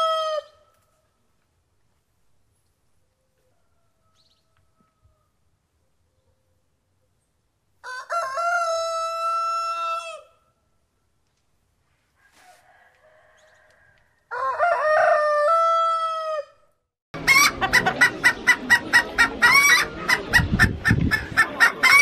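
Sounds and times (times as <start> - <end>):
rooster crowing: 0.0 - 0.6, 3.4 - 5.4, 7.8 - 10.4, 12.2 - 16.6
chickens clucking: 17.2 - 22.0.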